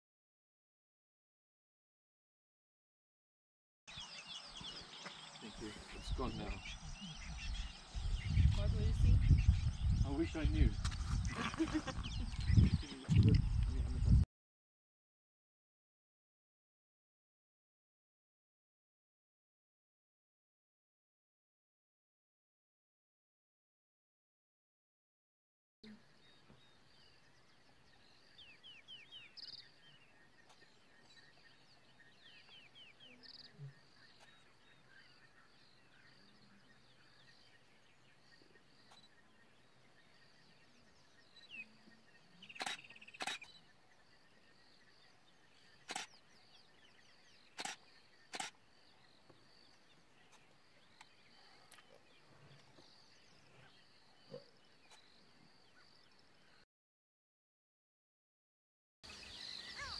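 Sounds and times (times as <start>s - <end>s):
birds chirping: 3.9s - 14.2s, 25.8s - 56.6s, 59.0s - 59.9s
camera shutter clicks: 42.6s - 43.5s, 47.6s - 48.6s.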